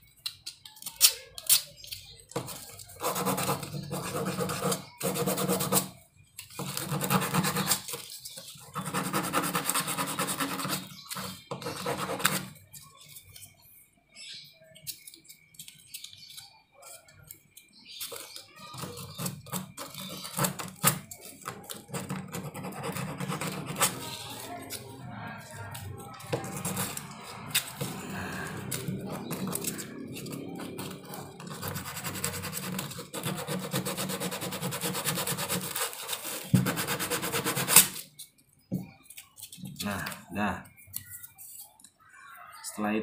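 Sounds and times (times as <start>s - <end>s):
wood scratching on sandpaper: 2.8s - 12.6s, 18.8s - 24.9s, 25.6s - 38.1s.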